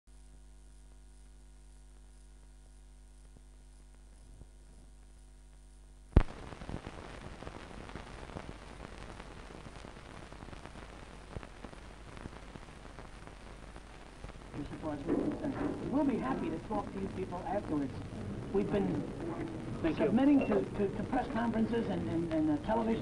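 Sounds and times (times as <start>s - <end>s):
crackly hiss with clicks: 0.1s - 23.0s
electrical hum: 0.1s - 23.0s
loud pop: 6.2s - 6.9s, 15.0s - 16.6s.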